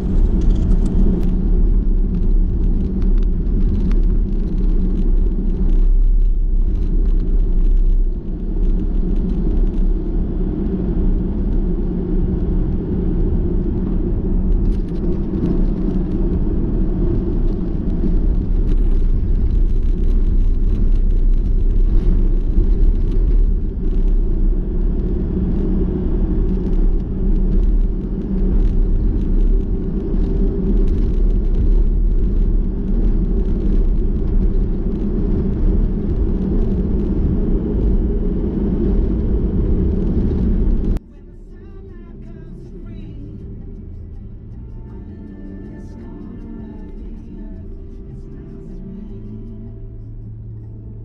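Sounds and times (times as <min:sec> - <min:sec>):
car driving on gravel: 0:00.0 - 0:51.0
faint music: 0:40.9 - 0:51.0.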